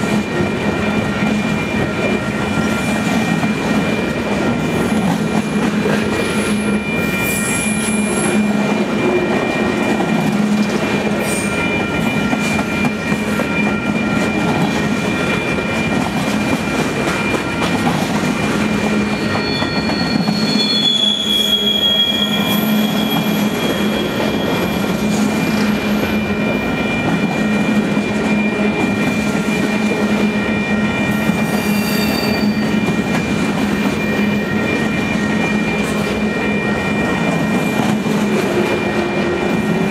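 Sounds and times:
train wheels rumbling on rails: 0.0s - 39.9s
high wheel squeal: 4.7s - 9.9s, 18.9s - 39.9s.

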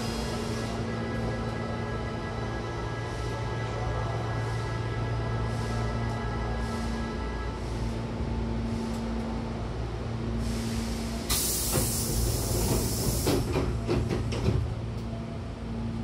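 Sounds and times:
air hiss of train doors: 0.0s - 0.8s, 10.3s - 14.6s
low hum of standing train: 0.0s - 16.0s.

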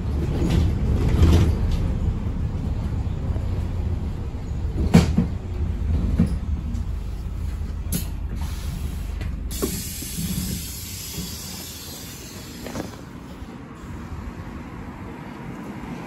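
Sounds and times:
bus engine rumble: 0.0s - 16.0s
street noise: 0.0s - 16.0s
pneumatic doors hissing open: 8.0s - 13.4s.

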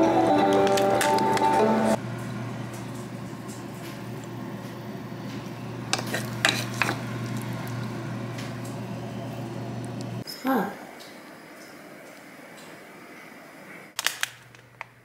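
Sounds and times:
wooden spoon scraping meat in pan: 5.9s - 7.0s.

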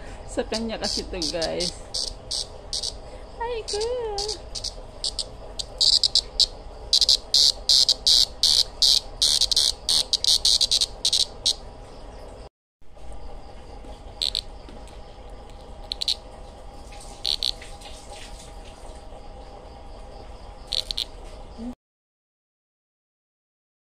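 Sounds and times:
cicada buzzing in harsh bursts: 0.3s - 11.8s, 14.1s - 16.2s, 16.8s - 18.3s, 20.1s - 21.2s.

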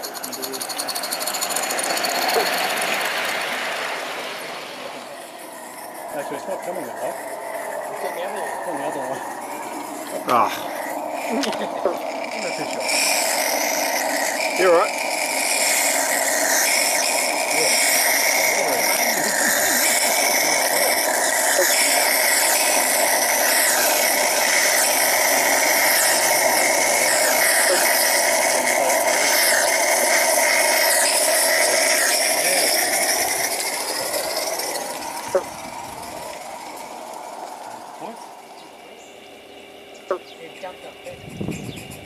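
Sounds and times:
steam locomotive hissing: 0.0s - 39.6s.

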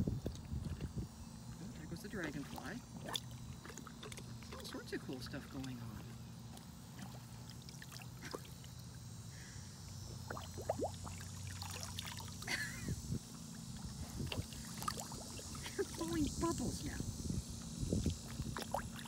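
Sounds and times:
steady low hum: 0.0s - 19.0s
dog lapping water: 0.1s - 1.0s, 2.0s - 8.7s, 10.2s - 12.4s, 13.8s - 16.8s.

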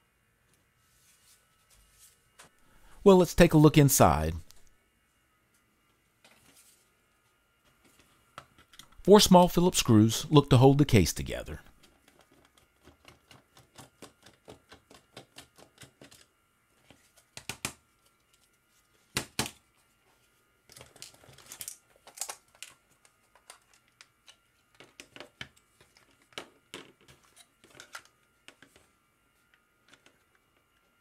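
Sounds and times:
plastic parts clicking and scraping: 20.7s - 28.8s.

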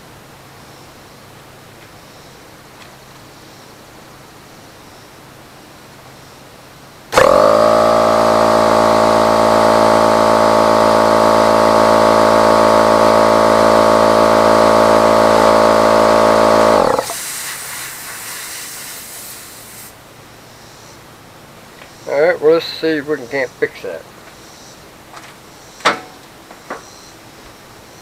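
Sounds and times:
air compressor running: 7.1s - 20.0s
hiss of escaping air: 16.9s - 20.0s.

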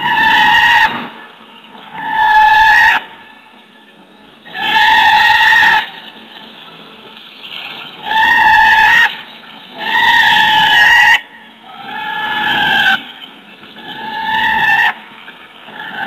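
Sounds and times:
giraffe calls: 13.8s - 15.1s.

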